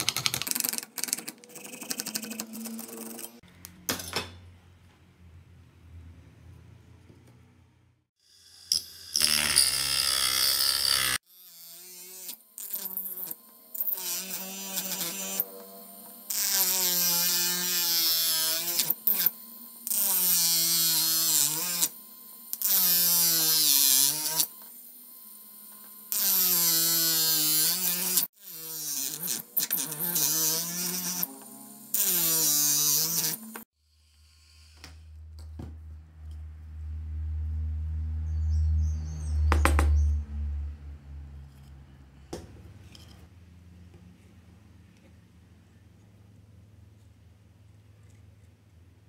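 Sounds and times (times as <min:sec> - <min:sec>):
electric motor whining: 0:10.7 - 0:33.7.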